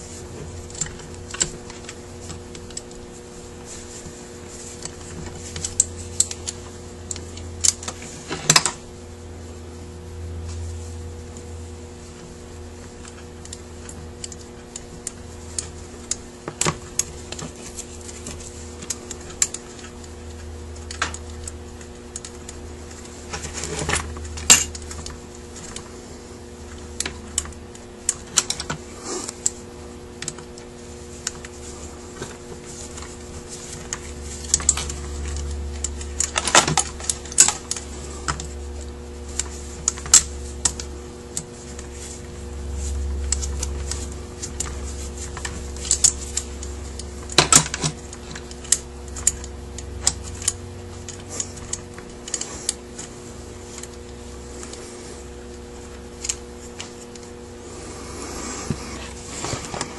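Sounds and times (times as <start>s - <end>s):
faint hum: 0.0s - 59.9s
metal parts clicking: 43.3s - 53.1s.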